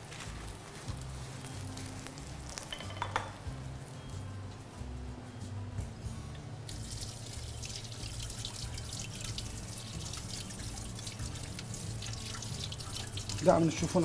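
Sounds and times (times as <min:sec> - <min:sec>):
sandwich sizzling in hot oil: 0:00.0 - 0:02.8, 0:06.7 - 0:14.0.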